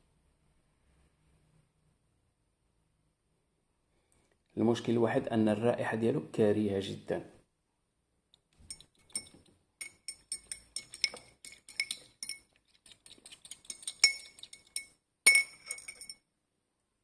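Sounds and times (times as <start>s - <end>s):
silver clinking against glass: 8.6s - 12.5s, 13.7s - 16.2s.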